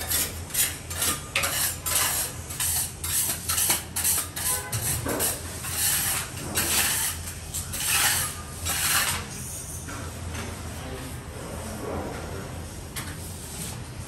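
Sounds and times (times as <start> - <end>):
sponge scrubbing ceramic tiles: 0.0 - 9.4.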